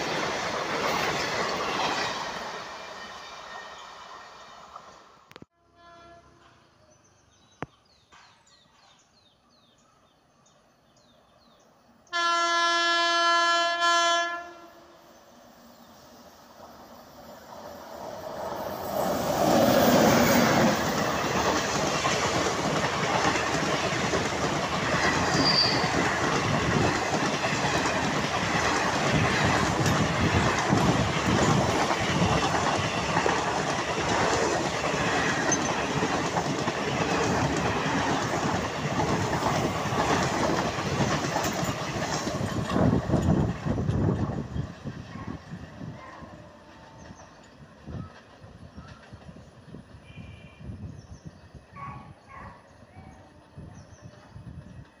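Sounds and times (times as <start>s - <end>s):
train passing with clickety-clack: 0.0s - 9.9s, 10.5s - 55.0s
locomotive horn blast: 5.5s - 6.6s, 12.1s - 15.0s, 50.0s - 50.8s.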